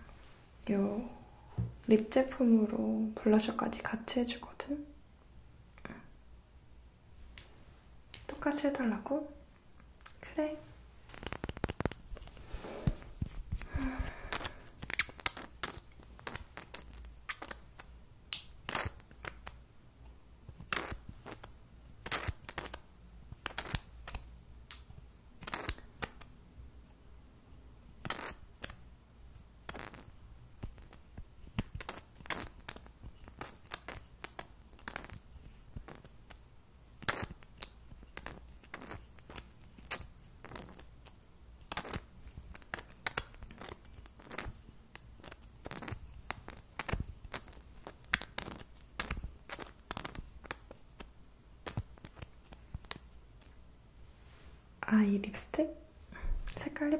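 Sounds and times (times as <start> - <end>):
plastic tubes clicking and tapping: 11.1 - 12.3.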